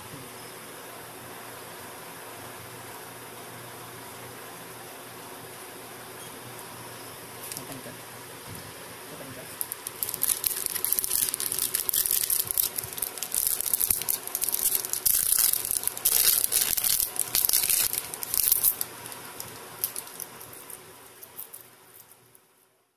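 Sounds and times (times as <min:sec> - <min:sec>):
plastic wrapping crinkling: 0:09.6 - 0:22.2.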